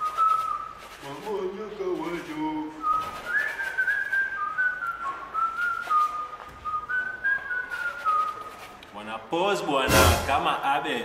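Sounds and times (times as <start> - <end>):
person whistling a slow tune: 0.0 - 0.9, 2.7 - 8.6.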